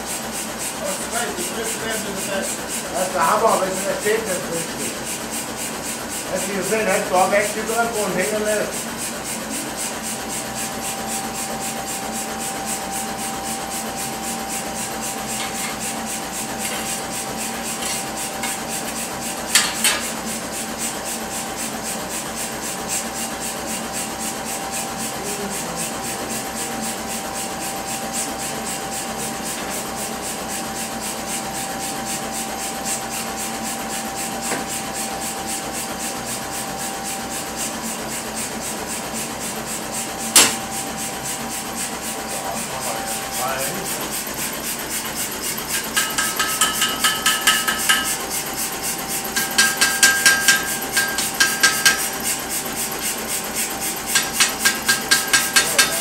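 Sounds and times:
sharp knock: 40.4s - 40.6s.

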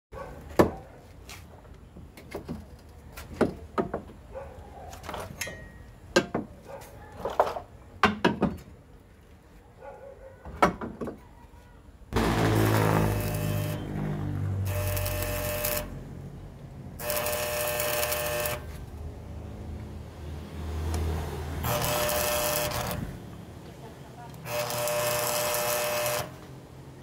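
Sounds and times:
arc welder crackling buzz: 12.2s - 16.1s, 17.0s - 18.8s, 21.6s - 23.2s, 24.4s - 26.5s.

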